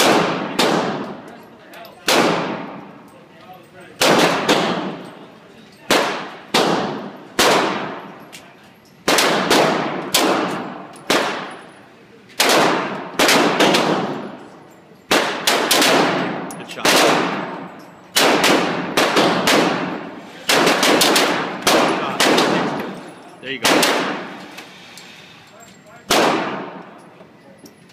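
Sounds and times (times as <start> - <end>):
pistol shots indoors: 0.0 - 1.3, 2.0 - 3.0, 4.0 - 5.2, 5.9 - 8.2, 9.0 - 11.8, 12.4 - 14.4, 15.0 - 24.5, 26.0 - 27.0.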